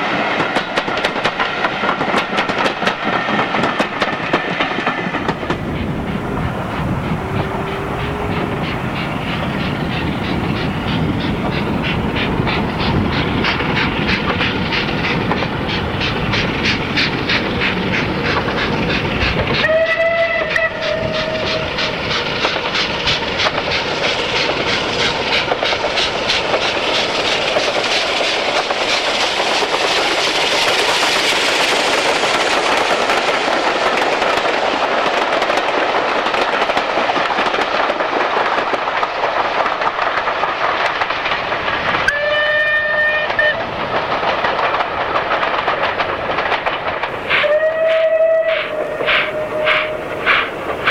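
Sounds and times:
train wheels on rails: 0.0s - 50.9s
steam locomotive exhaust beats: 5.2s - 33.3s, 47.0s - 50.9s
steam locomotive whistle: 6.8s - 10.7s, 19.5s - 21.9s, 42.1s - 43.6s, 47.2s - 50.9s.

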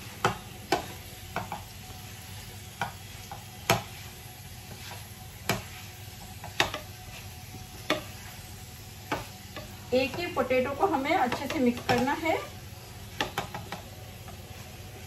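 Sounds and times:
low frying sizzle: 0.0s - 15.0s
wooden spatula knocking on pan: 0.2s - 1.7s, 2.8s - 3.9s, 5.4s - 5.7s, 6.3s - 7.0s, 7.8s - 8.2s, 9.0s - 12.2s, 13.1s - 13.9s.

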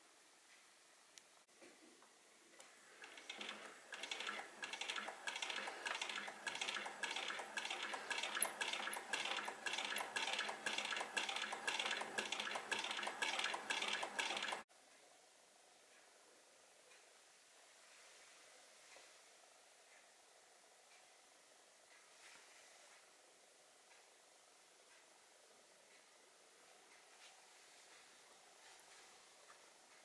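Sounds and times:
sewing machine metallic clicking: 2.6s - 14.7s.

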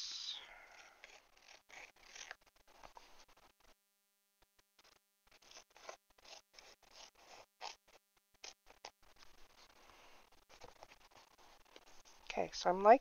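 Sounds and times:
scissors snipping paper: 5.3s - 7.8s.

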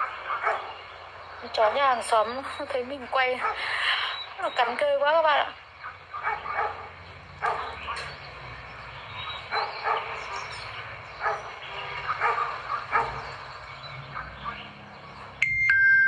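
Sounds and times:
dog barking: 0.0s - 0.8s, 3.4s - 3.7s, 5.8s - 8.0s, 9.5s - 10.5s, 11.2s - 13.4s, 14.1s - 14.7s.

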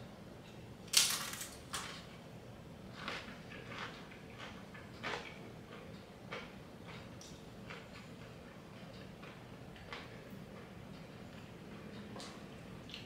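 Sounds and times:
chip crunching: 0.9s - 2.0s
chewing crunches: 2.9s - 10.2s.

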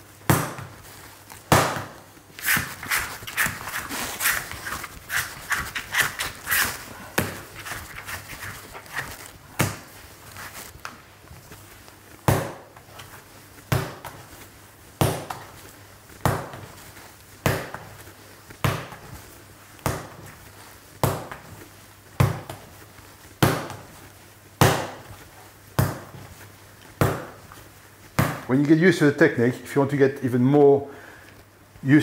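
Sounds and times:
dough slapped on wooden bench: 0.2s - 0.8s, 1.4s - 2.0s, 12.2s - 12.8s, 15.0s - 15.6s, 16.2s - 16.8s, 17.4s - 18.0s, 19.8s - 20.3s, 21.0s - 21.5s, 23.4s - 23.9s, 24.6s - 25.1s, 25.8s - 26.3s, 27.0s - 27.5s, 28.1s - 28.5s.

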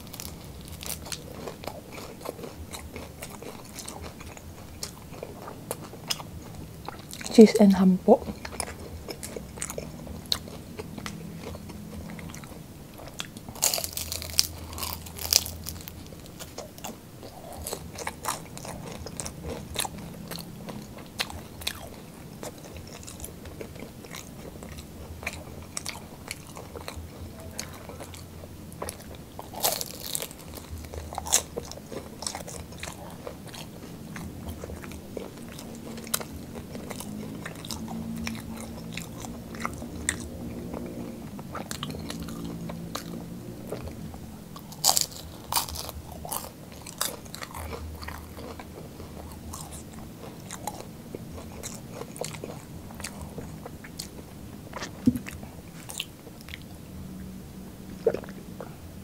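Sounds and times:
chewing: 0.0s - 7.5s, 8.2s - 57.3s
crunching bites into fried roll: 13.0s - 20.4s.

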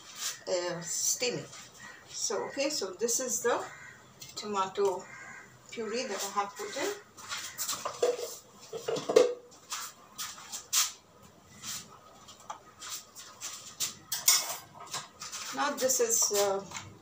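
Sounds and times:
bowls and utensils clinking: 7.7s - 9.4s, 14.0s - 15.1s.

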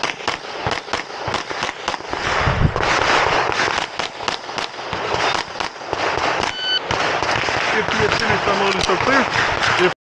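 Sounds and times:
pistol shots: 0.0s - 9.9s.

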